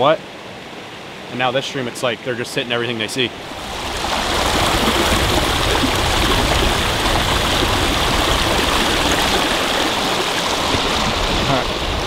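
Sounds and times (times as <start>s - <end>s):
stream running over stones: 3.4s - 12.0s.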